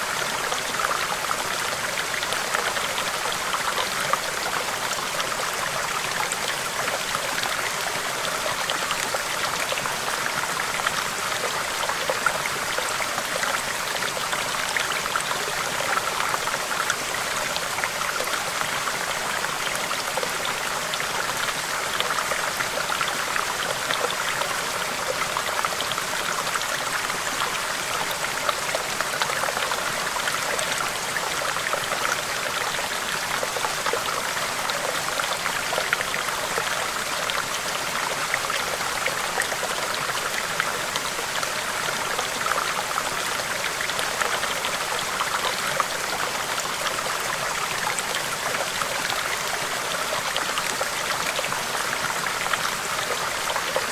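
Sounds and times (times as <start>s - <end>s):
stream babbling over rocks: 0.0s - 53.9s.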